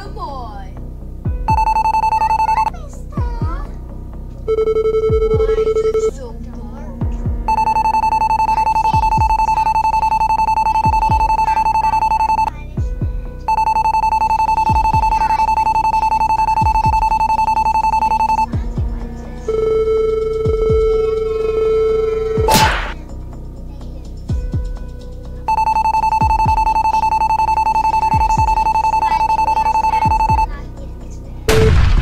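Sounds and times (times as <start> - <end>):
electronic beep tones: 1.5 - 2.7, 4.5 - 6.1, 7.5 - 12.5, 13.5 - 18.6, 19.5 - 23.0, 25.5 - 30.5.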